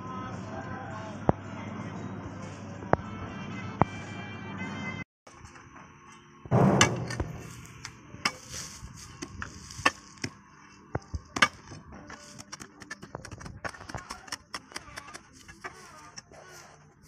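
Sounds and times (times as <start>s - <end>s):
digging bar striking stony ground: 6.5s - 10.4s, 11.0s - 16.3s
gravel crunching: 6.6s - 13.3s.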